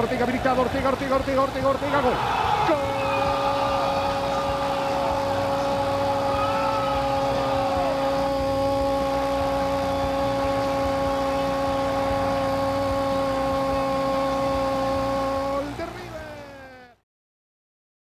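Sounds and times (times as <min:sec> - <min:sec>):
noisy background: 0:00.0 - 0:17.0
commentator long held shout: 0:01.8 - 0:15.0.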